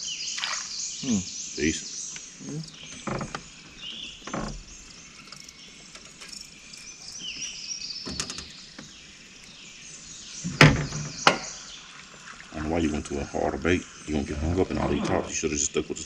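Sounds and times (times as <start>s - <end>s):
birds chirping high calls: 0.0s - 16.0s.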